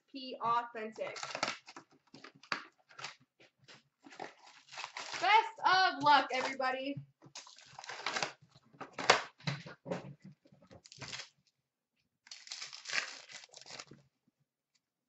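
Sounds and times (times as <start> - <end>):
card wrappers crinkling and tearing: 1.0 - 3.2, 4.0 - 6.7, 7.4 - 9.3, 10.8 - 11.4, 12.3 - 14.0.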